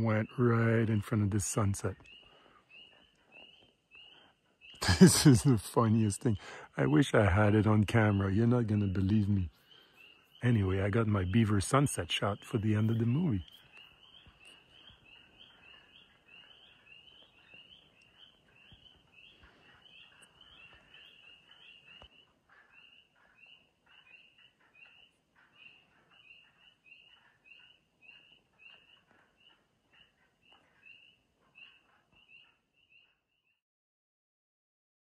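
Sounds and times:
frogs calling: 0.0 - 33.2.

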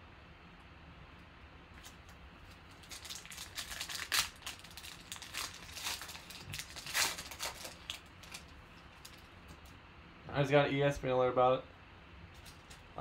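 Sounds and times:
foil wrapper crinkling and tearing: 1.8 - 9.3.

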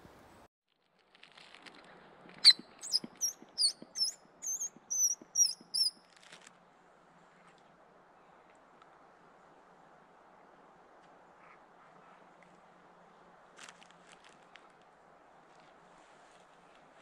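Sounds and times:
small animal chirping: 2.4 - 6.0.

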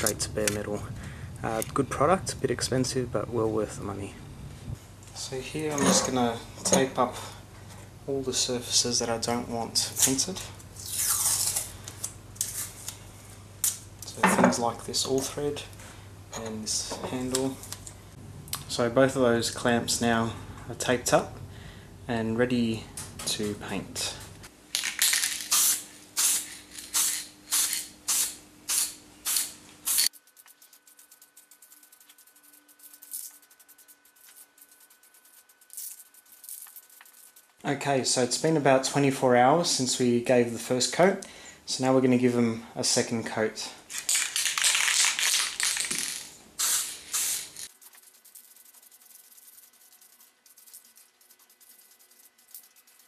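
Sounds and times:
spray can hissing bursts: 25.4 - 30.1, 46.6 - 53.0.

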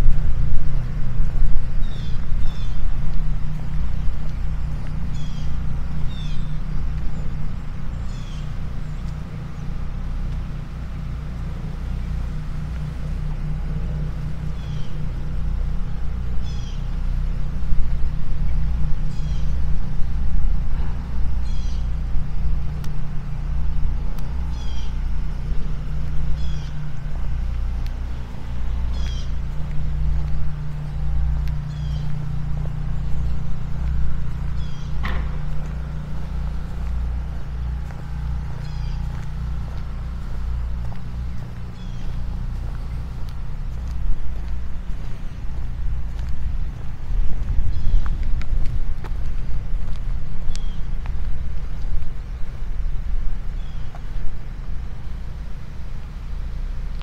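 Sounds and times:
low motor hum: 0.0 - 57.0
bird chirping: 1.7 - 2.9, 4.3 - 9.8, 14.5 - 15.1, 16.4 - 17.0, 18.3 - 20.2, 21.4 - 22.7, 24.2 - 40.0, 40.6 - 43.0, 46.7 - 48.3, 50.4 - 51.0, 53.6 - 54.0.

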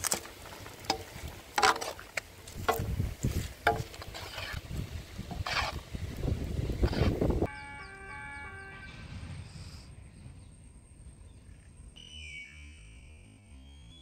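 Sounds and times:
wind rumble on microphone: 2.5 - 7.5.

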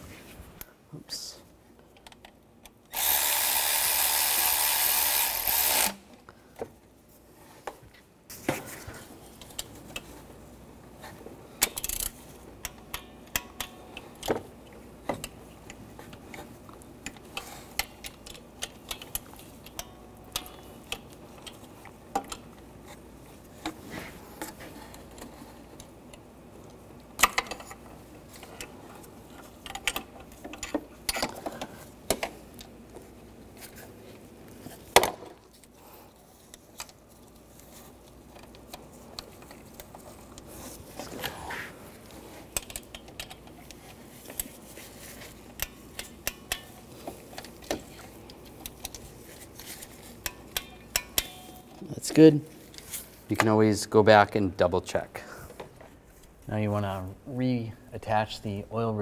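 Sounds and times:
power tool running: 2.9 - 6.0
ratchet clicking: 2.9 - 6.0.

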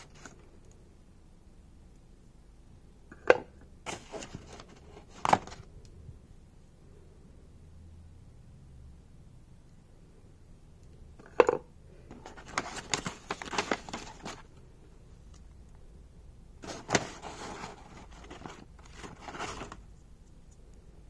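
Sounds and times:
paper and card rustling: 0.0 - 0.4, 3.9 - 5.7, 12.1 - 14.6, 16.6 - 19.9
notepad pages riffled: 3.9 - 5.6, 12.1 - 14.5, 16.6 - 19.8.

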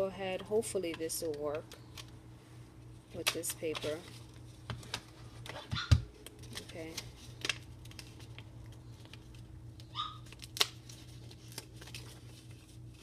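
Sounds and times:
paper rustling and crinkling: 6.3 - 13.0.

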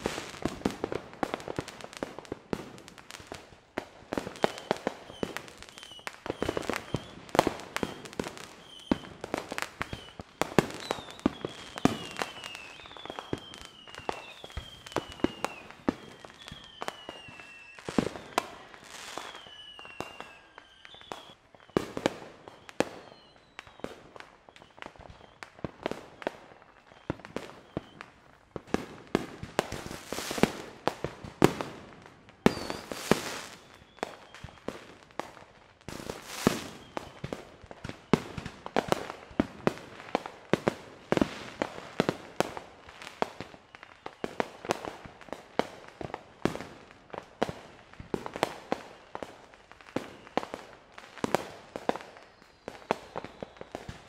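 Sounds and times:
fireworks bangs and pops: 0.0 - 54.0
fireworks hissing: 32.4 - 33.8, 35.9 - 36.9.

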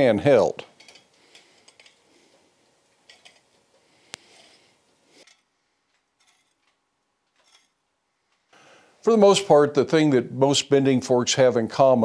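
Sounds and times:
steel clinking and scraping: 3.0 - 3.6, 4.3 - 5.6, 6.2 - 7.8.

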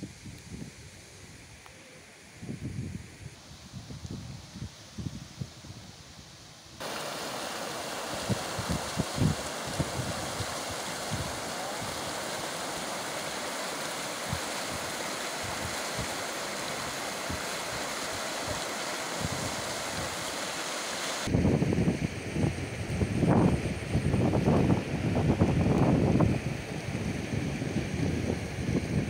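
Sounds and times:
floodwater rushing: 6.8 - 21.3.

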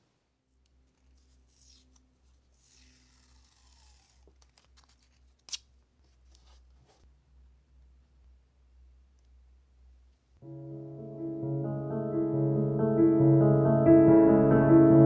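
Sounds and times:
masking tape peeled off roll: 1.5 - 5.7.

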